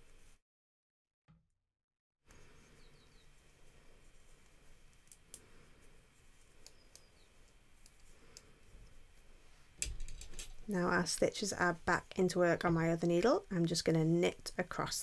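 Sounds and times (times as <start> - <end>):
knitting needle clicks: 6.6 - 7.2.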